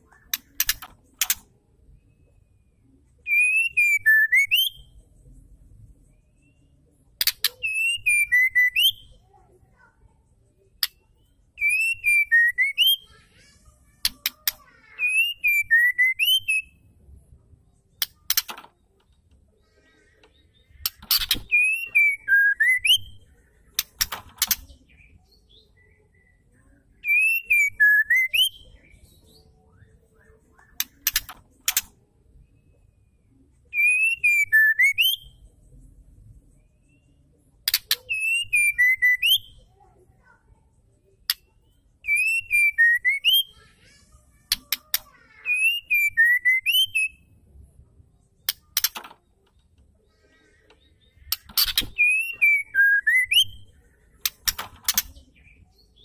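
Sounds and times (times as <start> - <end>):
sharp clicks: 0.3 - 1.5, 18.0 - 19.2, 23.7 - 24.8, 30.8 - 32.0, 48.4 - 49.9, 54.2 - 55.2
bird whistled calls with twittering: 3.3 - 4.9, 7.4 - 9.2, 11.6 - 13.1, 15.0 - 16.8, 20.8 - 23.2, 27.0 - 29.4, 33.7 - 35.4, 37.9 - 39.6, 42.0 - 43.6, 45.4 - 47.3, 51.2 - 56.0.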